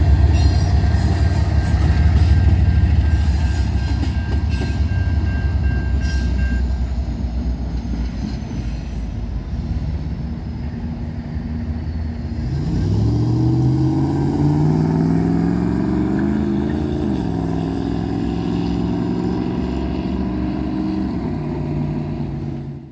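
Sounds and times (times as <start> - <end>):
freight train rumbling: 0.0 - 22.9
high ringing tone: 0.3 - 7.0
vehicle engine accelerating: 12.4 - 22.9.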